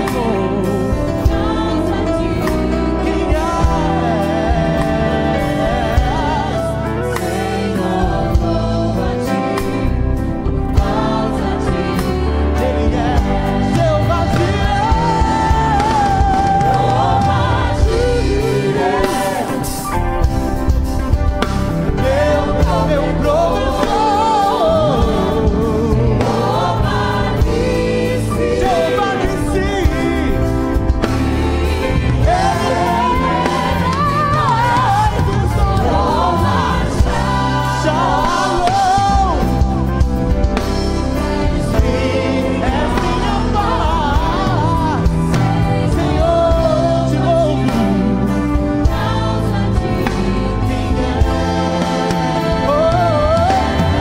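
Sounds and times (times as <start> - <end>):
drum kit with cymbals: 0.0 - 54.0
people singing: 0.0 - 54.0
worship band playing: 0.0 - 54.0.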